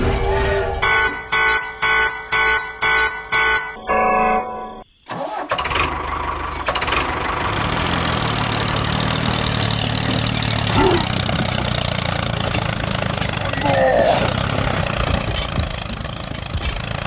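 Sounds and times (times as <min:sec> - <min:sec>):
tractor engine starting and idling: 0:05.1 - 0:17.0.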